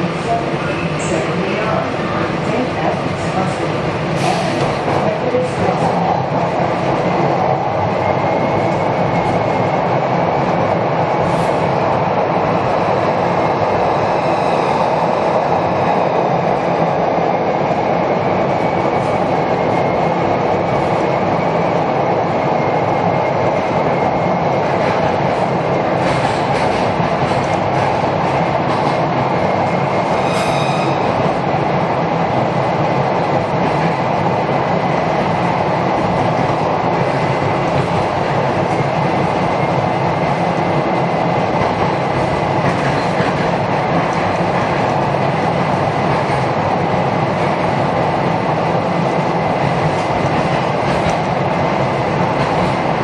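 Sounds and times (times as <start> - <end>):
subway train wheels rumbling: 0.0 - 53.0
high wheel squeals: 30.2 - 31.1.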